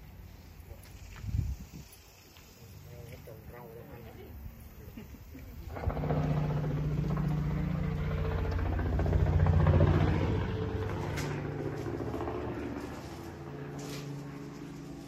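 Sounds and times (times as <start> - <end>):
engine humming: 5.4 - 15.0.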